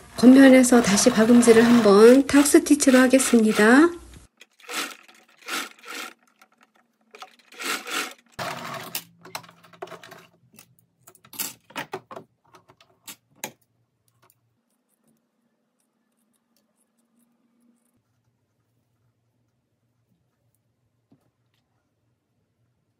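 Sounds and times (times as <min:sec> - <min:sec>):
sewing machine motor humming: 0:00.0 - 0:06.3, 0:07.2 - 0:09.0.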